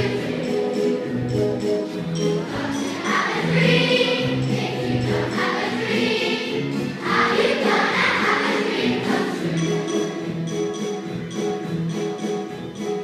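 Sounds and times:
choir singing: 0.0 - 1.1, 2.4 - 10.3
instrumental accompaniment: 0.0 - 13.0.

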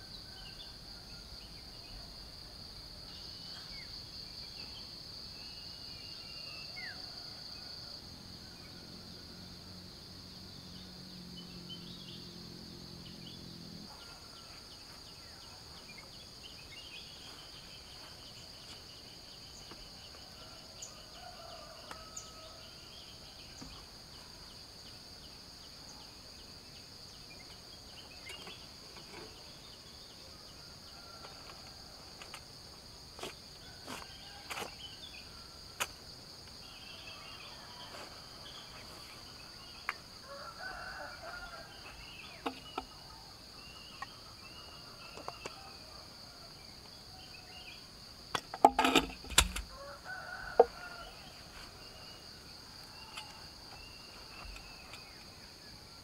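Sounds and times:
insects droning: 0.0 - 56.0
metallic clicks of gas canister: 48.3 - 49.7
camping gear knocking: 48.4 - 49.7.

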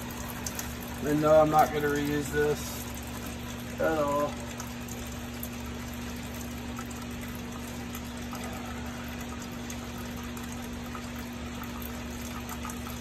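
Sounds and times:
fuel draining into a bucket: 0.0 - 13.0
steady low hum: 0.0 - 13.0.

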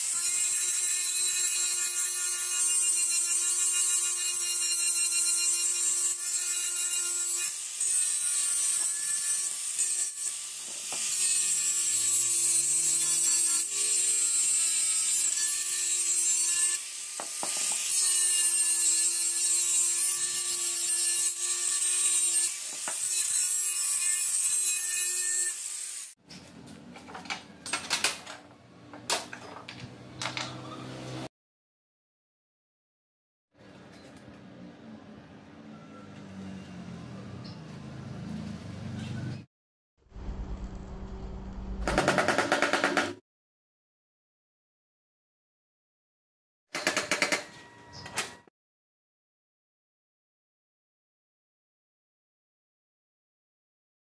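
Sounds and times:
angle grinder grinding metal: 0.0 - 26.2.

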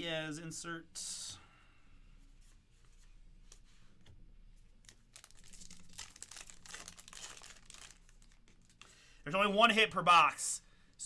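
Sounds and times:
wrapper tearing and crinkling: 4.9 - 8.8.

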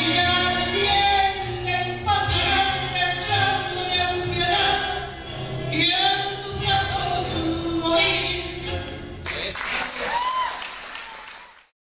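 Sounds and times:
tango music: 0.0 - 9.2
audience applause: 9.3 - 11.7.

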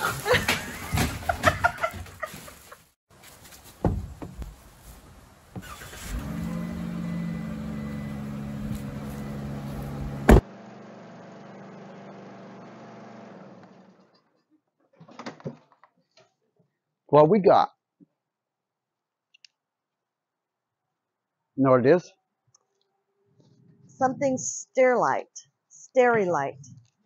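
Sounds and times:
van engine starting and idling: 5.5 - 14.3.

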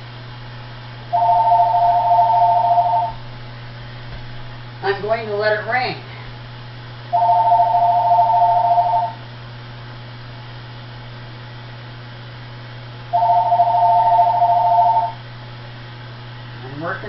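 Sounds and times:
low hum: 0.0 - 5.2, 6.0 - 10.5
two-tone telephone ring: 1.2 - 3.1, 7.2 - 9.2, 13.2 - 15.2.

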